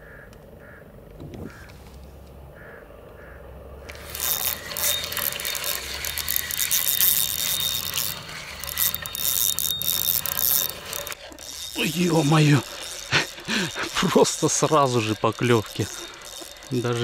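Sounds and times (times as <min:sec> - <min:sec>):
fishing reel ratcheting clicks: 0:03.9 - 0:17.0.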